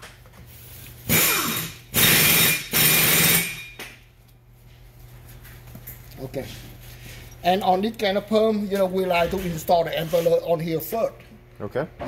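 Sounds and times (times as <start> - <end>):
harsh mechanical tool bursts: 1.0 - 3.8.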